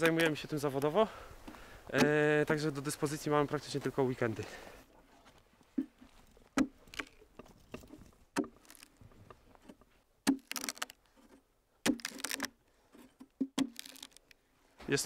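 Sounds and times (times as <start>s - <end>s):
wood splitting crackle: 5.8s - 14.4s.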